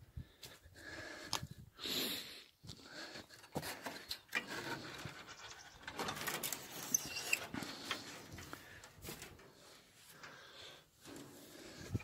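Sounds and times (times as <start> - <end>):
knocks and rustling: 3.6 - 9.6.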